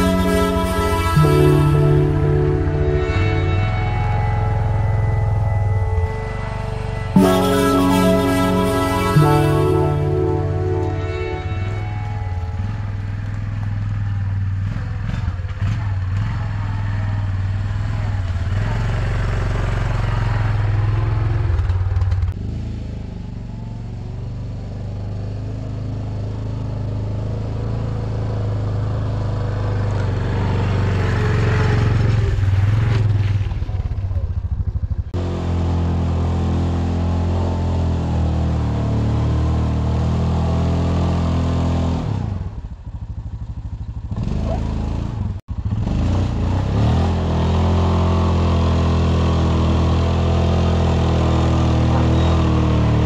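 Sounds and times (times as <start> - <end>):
quad engine running under load: 0.0 - 53.0.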